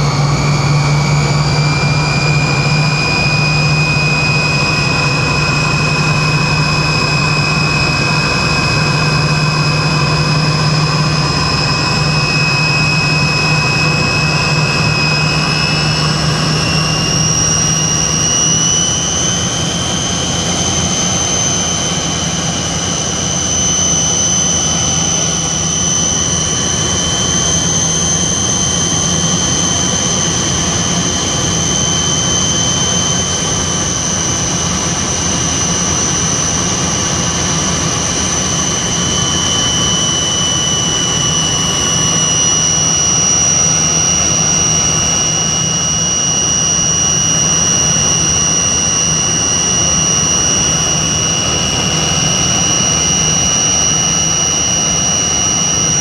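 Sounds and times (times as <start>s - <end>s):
high turbine whine: 0.0s - 56.0s
jet engine rush: 0.0s - 56.0s
low engine hum: 0.0s - 56.0s.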